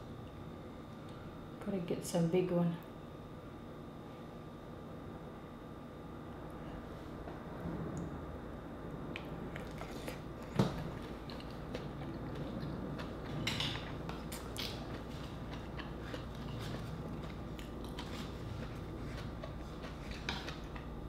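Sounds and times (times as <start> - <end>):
chewing with small clicks: 9.2 - 21.0.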